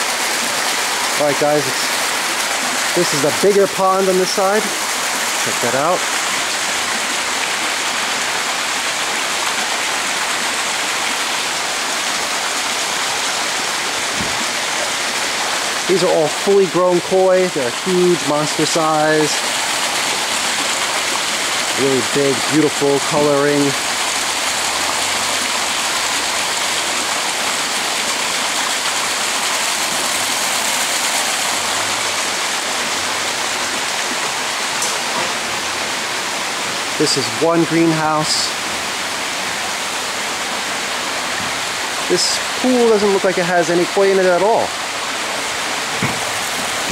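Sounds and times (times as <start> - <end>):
running water splashing: 0.0 - 46.9.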